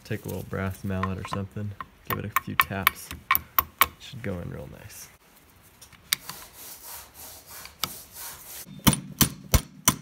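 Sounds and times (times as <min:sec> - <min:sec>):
handling metal parts: 0:00.2 - 0:04.1
mallet tapping metal pin: 0:01.0 - 0:04.0.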